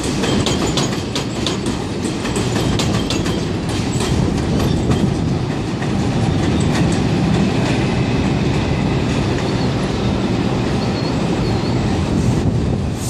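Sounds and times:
wheels clattering over rail joints: 0.0s - 10.1s
subway train rumbling on steel: 0.0s - 13.0s
wheel squeals: 9.2s - 12.3s.

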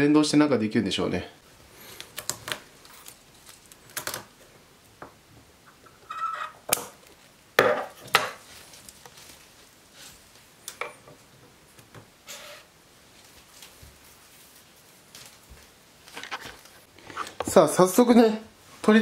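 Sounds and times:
rustle: 5.6s - 17.4s.

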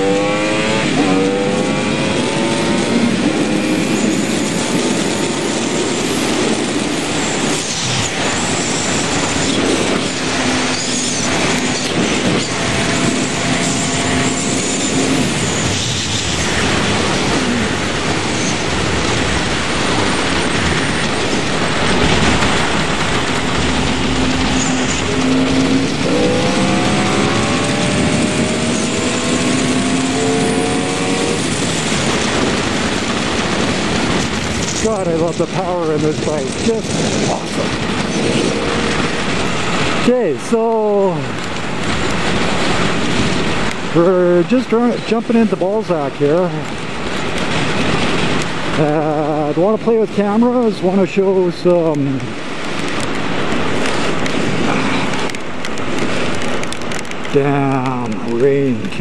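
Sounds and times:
motorcycle engine accelerating: 0.0s - 40.1s
wind rush on microphone: 0.0s - 59.0s.

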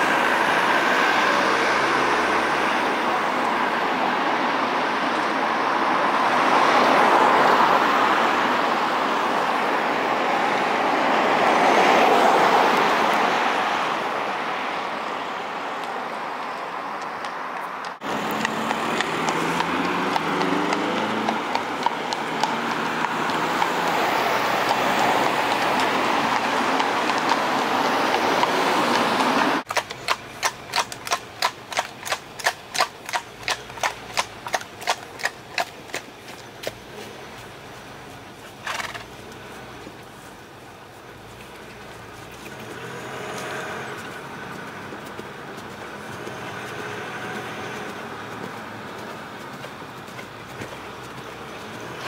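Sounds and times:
hooves clip-clopping on road: 0.0s - 52.0s
passing vehicle: 0.0s - 52.0s.

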